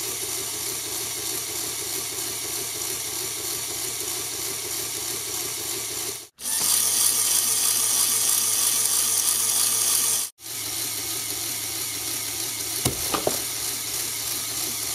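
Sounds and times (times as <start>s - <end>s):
whirring clatter of plastic gears: 0.0s - 14.9s
sharp knocks: 12.8s - 13.5s.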